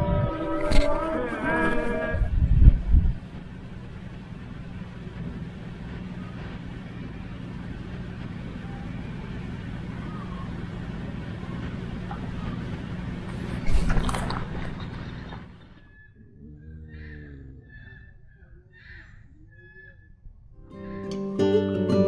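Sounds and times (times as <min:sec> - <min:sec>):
low engine drone: 0:00.0 - 0:21.7
brief rush of noise: 0:13.3 - 0:15.5.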